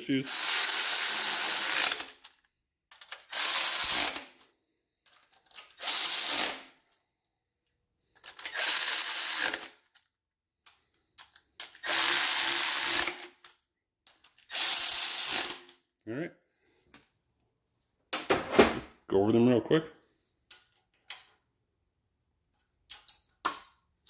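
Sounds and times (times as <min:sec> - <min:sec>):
electric ratchet spinning bolts: 0:00.2 - 0:04.4, 0:05.4 - 0:06.7, 0:08.2 - 0:09.8, 0:11.6 - 0:13.4, 0:14.3 - 0:15.7.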